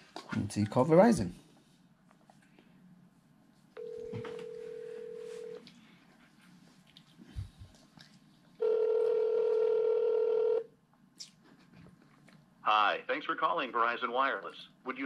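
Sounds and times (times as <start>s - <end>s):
phone ringback tone: 3.8s - 5.6s, 8.6s - 10.6s.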